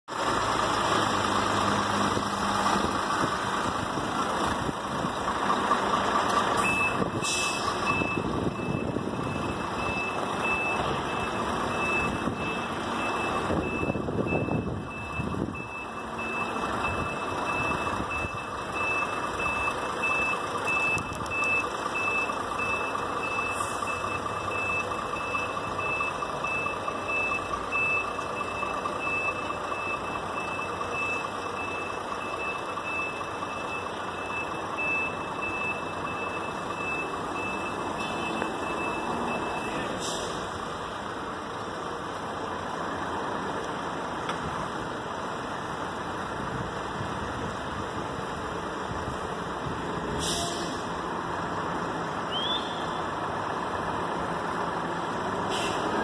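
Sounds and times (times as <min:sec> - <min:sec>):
heavy vehicle engine running: 0:00.0 - 0:56.0
reversing beeper: 0:06.6 - 0:40.5.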